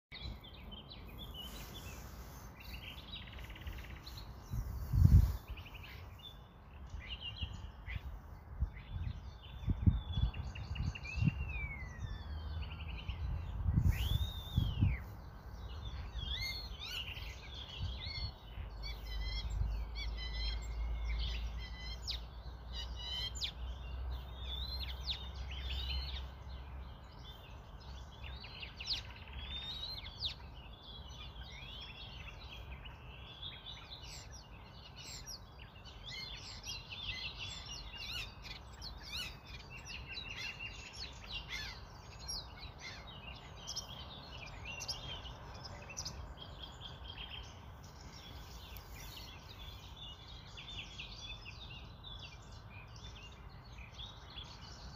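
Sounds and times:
small birds chirping: 0:00.0 - 0:54.9.

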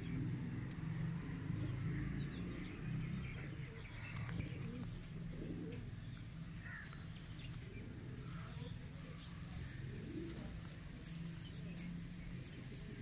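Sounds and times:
pigeons cooing: 0:03.4 - 0:06.1, 0:07.5 - 0:13.0.

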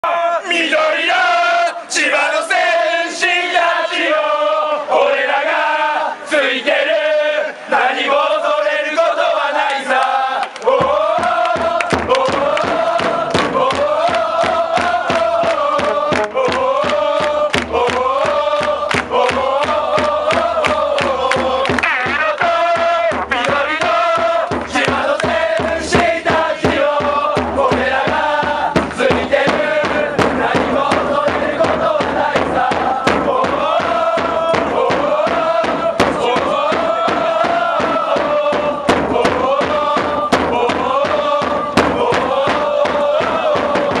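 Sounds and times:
football supporters chanting: 0:00.0 - 0:44.0
steady drumbeat: 0:10.7 - 0:44.0.

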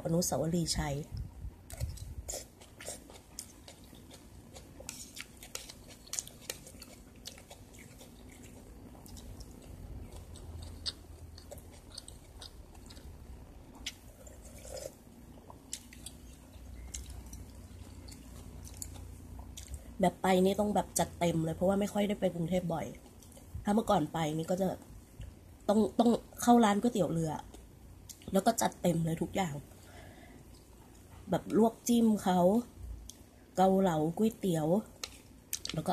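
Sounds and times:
person chewing food: 0:01.7 - 0:20.0.

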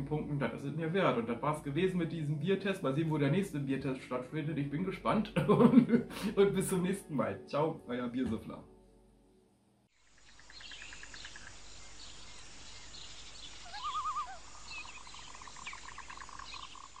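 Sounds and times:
steady hiss: 0:09.9 - 0:13.7
birds chirping and trilling: 0:10.0 - 0:17.0
fast pulsed bird call: 0:10.2 - 0:17.0
wavering bird call: 0:13.6 - 0:16.9.

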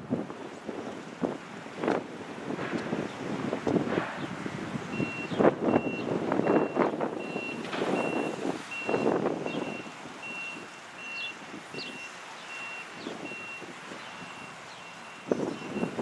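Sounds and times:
wind buffeting microphone: 0:00.0 - 0:16.0
vehicle reversing alarm beeping: 0:04.9 - 0:16.0.

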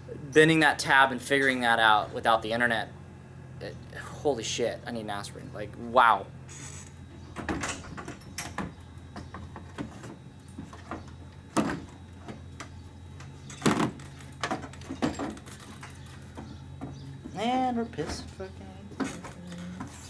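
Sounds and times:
radiator knocking and scraping: 0:06.6 - 0:20.0.

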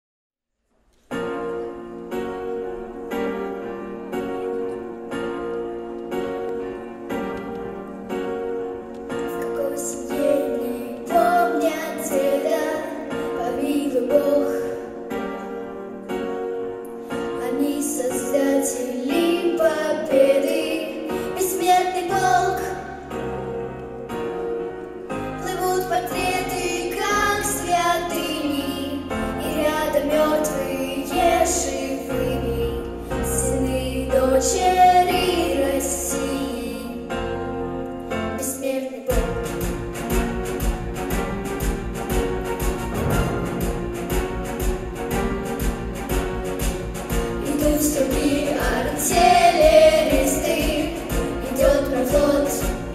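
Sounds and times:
recorded backing music: 0:00.9 - 0:52.9
girls singing into microphones: 0:09.4 - 0:15.0, 0:17.4 - 0:23.1, 0:25.4 - 0:37.0, 0:47.3 - 0:52.9
steady beat: 0:39.7 - 0:52.9.

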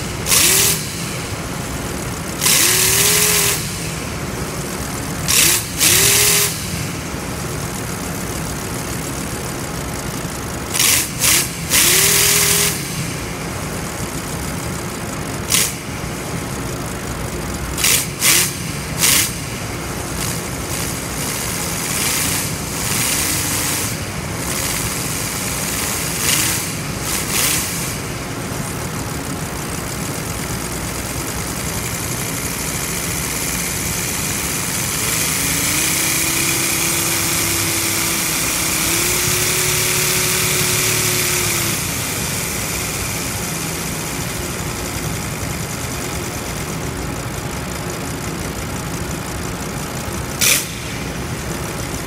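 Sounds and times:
model radial engine running: 0:00.0 - 0:52.0.

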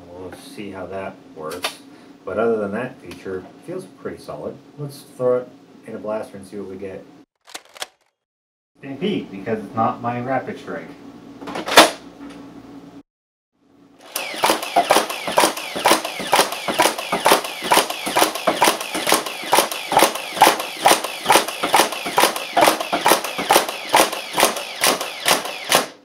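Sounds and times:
foam dart blaster firing: 0:14.1 - 0:26.0.

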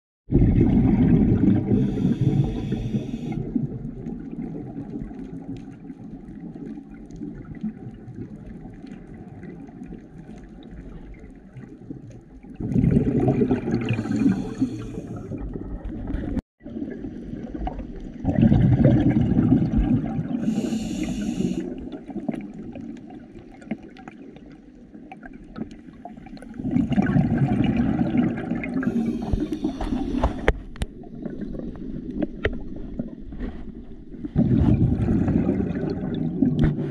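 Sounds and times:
bubbling regulator exhalations: 0:00.3 - 0:03.9, 0:12.6 - 0:17.5, 0:18.2 - 0:22.7, 0:26.3 - 0:30.8, 0:34.4 - 0:36.9
soft water rush: 0:00.5 - 0:36.9.

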